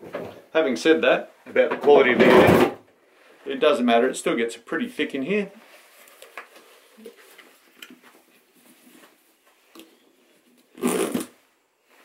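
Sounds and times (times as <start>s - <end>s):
coverall rustling: 5.2s - 10.4s.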